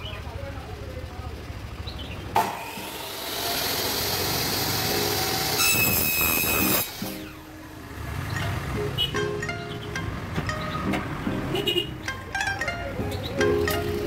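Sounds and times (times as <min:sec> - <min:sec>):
mitre saw cutting metal: 0:02.4 - 0:07.4.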